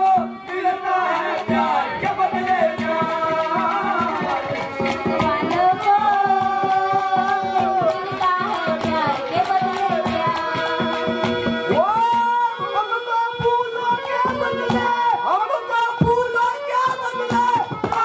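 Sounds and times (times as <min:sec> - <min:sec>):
hand drums and clay pot: 0:01.4 - 0:18.0.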